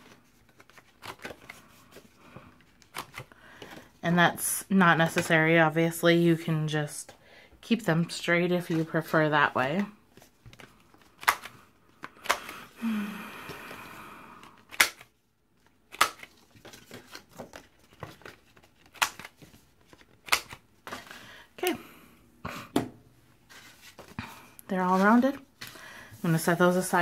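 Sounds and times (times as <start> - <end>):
card rustling: 0.0 - 4.0, 8.5 - 12.8, 14.4 - 21.5, 23.4 - 27.0
corner punch snapping through card: 14.7 - 15.1, 15.9 - 16.3.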